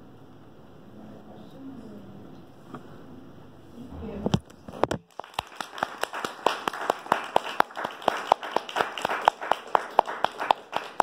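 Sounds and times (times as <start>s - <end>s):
small audience clapping: 4.8s - 11.0s.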